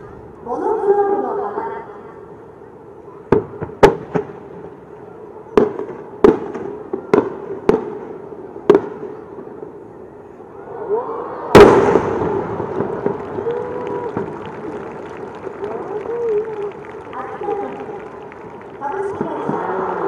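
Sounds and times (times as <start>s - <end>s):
fireworks bangs: 3.3s - 4.8s, 5.5s - 9.8s, 11.5s - 20.0s
loud firework bang with rumble: 11.5s - 13.4s.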